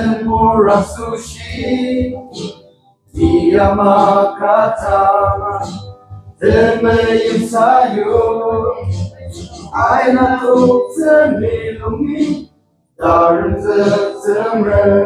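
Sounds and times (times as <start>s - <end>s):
men singing a hymn in unison: 3.2s - 5.7s, 6.4s - 8.8s, 9.8s - 12.4s, 13.0s - 15.0s.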